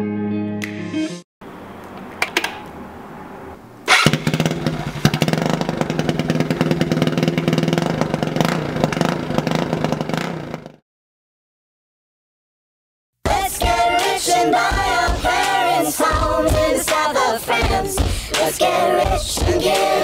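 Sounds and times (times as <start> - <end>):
scooter engine running: 3.9 - 10.8.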